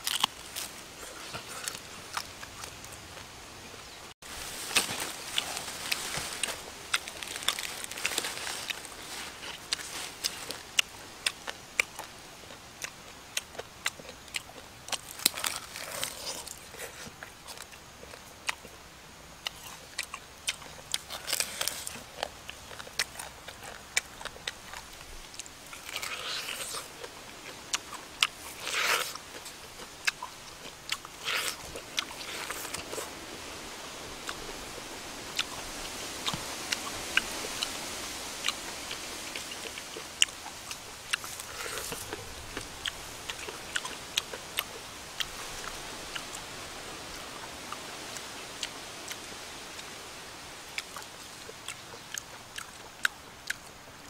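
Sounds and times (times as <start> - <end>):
tearing and crunching bursts: 0.0 - 3.3, 4.2 - 18.7, 19.4 - 33.2, 38.4 - 46.4
chewing and crunching: 0.0 - 3.4, 4.2 - 18.8, 19.4 - 33.2, 34.2 - 37.8, 38.4 - 49.9, 50.7 - 54.0.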